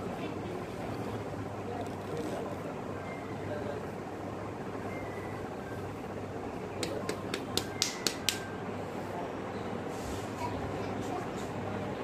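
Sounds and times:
fan hum: 0:00.0 - 0:12.0
fingers tapping skin: 0:06.8 - 0:08.4.

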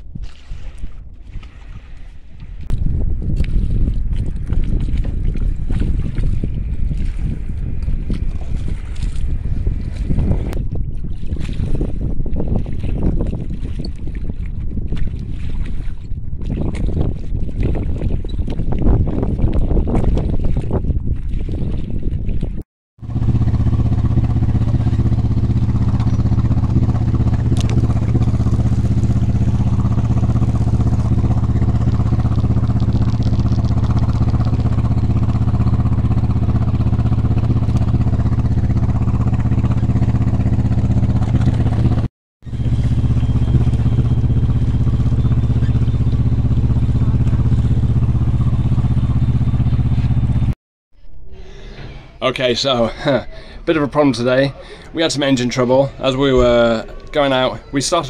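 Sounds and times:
diesel engine running: 0:23.0 - 0:52.2.

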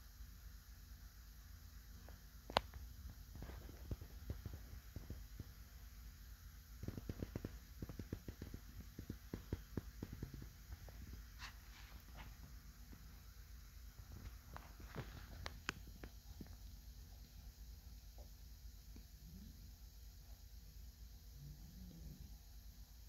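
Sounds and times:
faint low hum: 0:00.0 - 0:23.0
small ticks and taps: 0:02.1 - 0:05.6, 0:06.8 - 0:11.2, 0:14.2 - 0:16.6.

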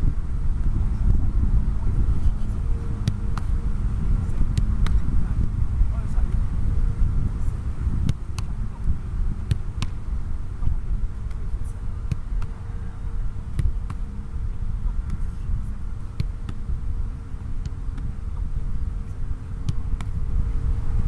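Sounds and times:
steady low rumble: 0:00.0 - 0:21.0
ball thumping into gloves: 0:03.0 - 0:03.6, 0:04.2 - 0:05.2, 0:08.0 - 0:08.7, 0:09.4 - 0:10.0, 0:10.6 - 0:12.9, 0:13.5 - 0:14.2, 0:14.9 - 0:16.7, 0:17.5 - 0:18.5, 0:19.6 - 0:20.2.

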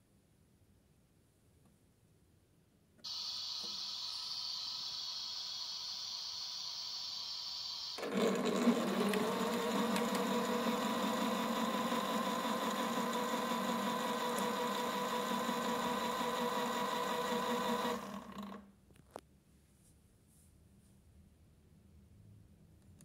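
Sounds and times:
small electric motor whirring: 0:03.1 - 0:18.6.

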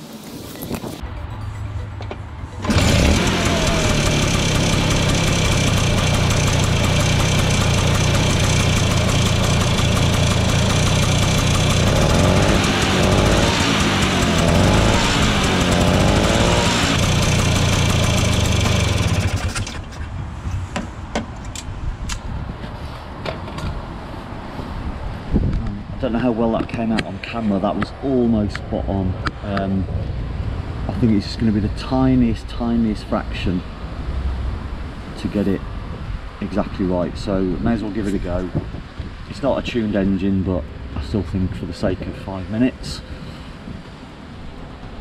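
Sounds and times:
scooter engine starting and running: 0:02.0 - 0:20.1.

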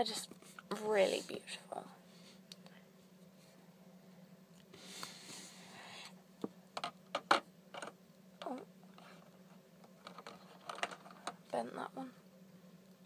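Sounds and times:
plastic parts clicking: 0:10.0 - 0:11.4.

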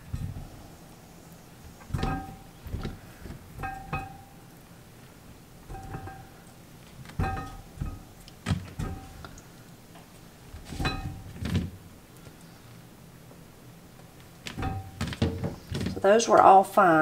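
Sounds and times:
cucumbers thunking into glass jar: 0:01.8 - 0:04.3, 0:05.6 - 0:06.4, 0:07.1 - 0:09.3, 0:10.6 - 0:11.8, 0:14.5 - 0:16.0.

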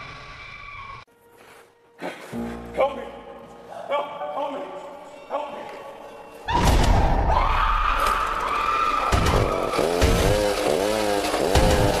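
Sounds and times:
chainsaw engine revving: 0:08.9 - 0:12.0.

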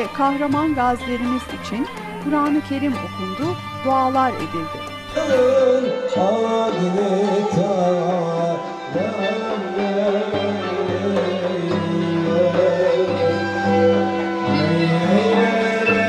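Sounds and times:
frame drum beat: 0:00.0 - 0:05.5
ney flute: 0:00.0 - 0:16.0
violin: 0:00.0 - 0:16.0
man singing: 0:05.0 - 0:16.0.

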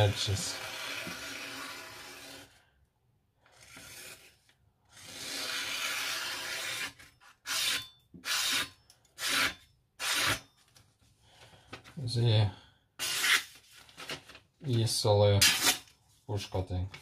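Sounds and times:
cleaver slicing paper: 0:05.0 - 0:10.4, 0:13.0 - 0:13.7.

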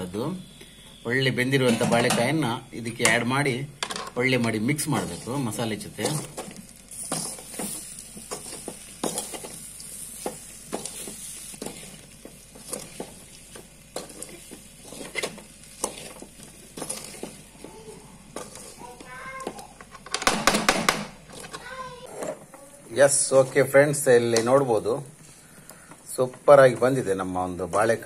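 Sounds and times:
faint sizzle: 0:00.0 - 0:20.1, 0:21.0 - 0:28.0
metal spatula scraping a pan: 0:06.0 - 0:17.6, 0:18.4 - 0:19.1.

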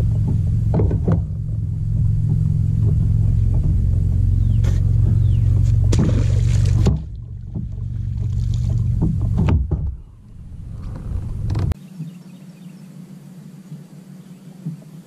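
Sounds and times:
knocks against boat: 0:00.0 - 0:10.1
steady low drone: 0:00.0 - 0:11.8
landing net splashing in water: 0:05.4 - 0:09.9.

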